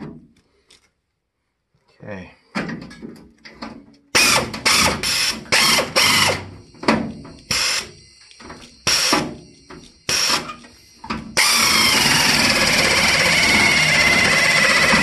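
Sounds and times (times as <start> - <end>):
air-powered metal cutter: 4.2 - 6.7, 7.4 - 15.0.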